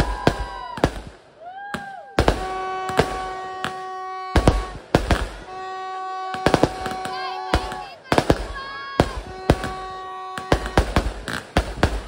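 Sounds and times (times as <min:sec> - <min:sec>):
firework whistles: 0:00.0 - 0:12.0
fireworks bangs and crackles: 0:00.0 - 0:12.0
held horn-like tone: 0:02.4 - 0:08.0, 0:09.1 - 0:11.0.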